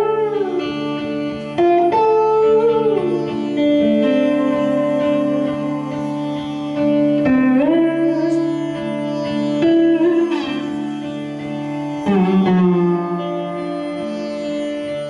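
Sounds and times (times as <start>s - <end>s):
lap slide guitar: 0.0s - 15.0s.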